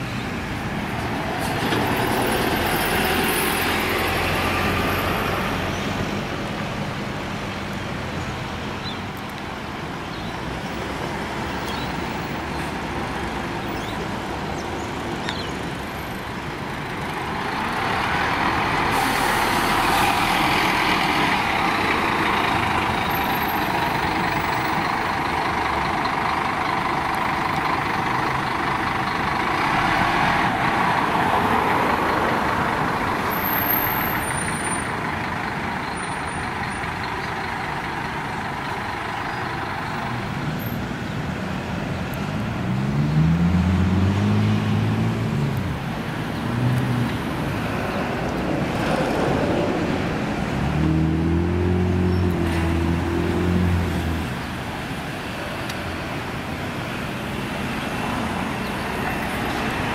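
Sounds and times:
bus engine and tyre noise: 0.0 - 59.9
bus brake hiss: 18.9 - 19.9.

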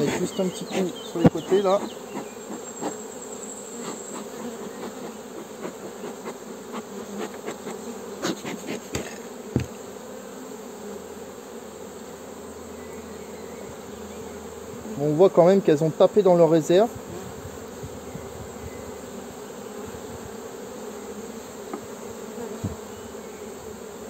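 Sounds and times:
honeybees buzzing: 0.0 - 24.0
sharp knocks: 8.9 - 9.8.

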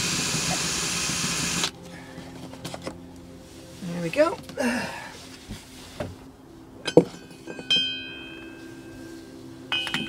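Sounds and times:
steady low hum: 0.0 - 10.0
metal part ringing: 6.8 - 8.6, 9.7 - 10.0
metal winch parts clinking: 6.8 - 8.9, 9.7 - 10.0.

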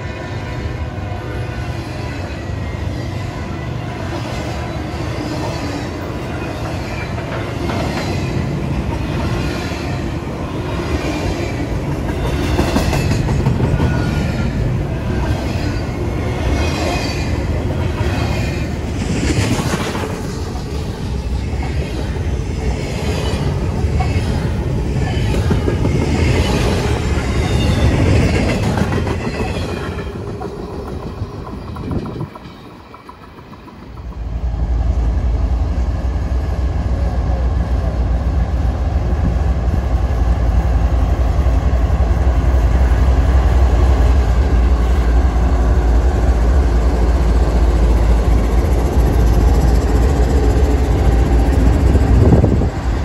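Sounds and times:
train wheels rumbling on rail: 0.0 - 53.0
wheels clacking over rail joints: 23.3 - 34.4.

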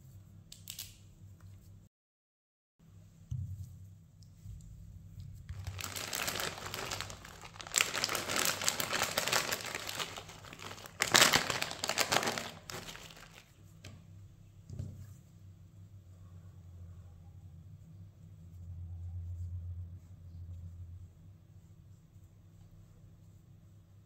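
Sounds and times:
plastic bag crinkling: 5.5 - 13.5.

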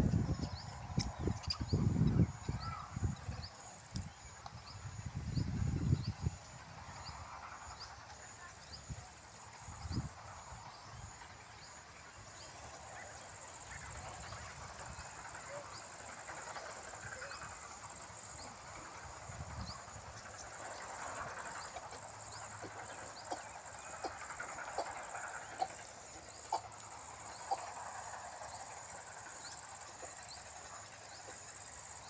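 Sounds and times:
wind rumble on microphone: 0.0 - 7.9, 8.6 - 11.4, 18.4 - 21.7.

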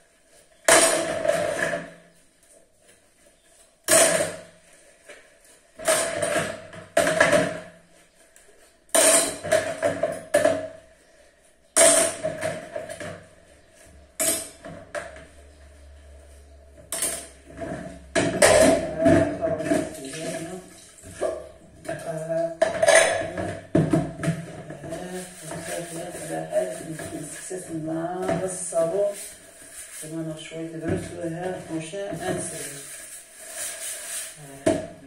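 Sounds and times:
dishes and pans clattering: 8.9 - 10.7, 21.8 - 25.8.

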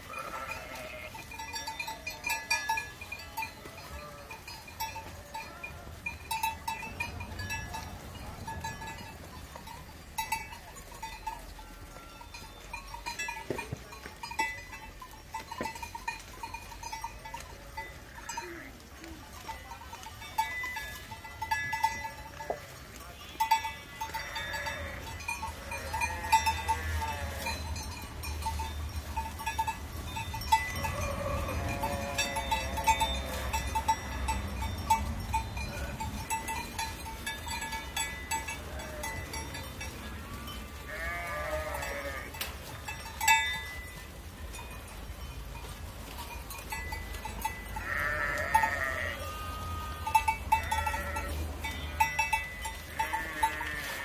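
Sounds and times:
sheep bleating: 0.0 - 1.3, 23.8 - 27.7, 30.8 - 33.6, 38.5 - 42.4, 47.8 - 52.2, 52.9 - 54.0
sheep bells clinking: 0.0 - 54.0.

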